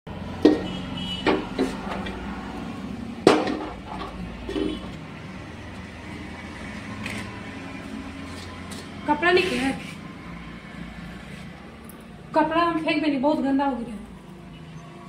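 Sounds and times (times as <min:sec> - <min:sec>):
metal pot knocking and clattering: 0:00.4 - 0:02.2, 0:03.3 - 0:04.9.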